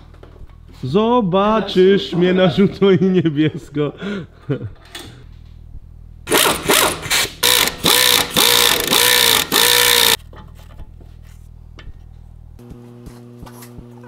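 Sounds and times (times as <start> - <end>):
impact wrench bursts: 6.3 - 10.2.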